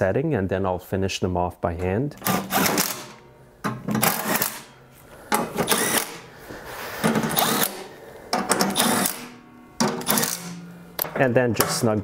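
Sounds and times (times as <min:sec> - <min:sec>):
impact driver bursts: 0:02.2 - 0:03.2, 0:03.9 - 0:04.7, 0:05.3 - 0:06.3, 0:07.0 - 0:10.7.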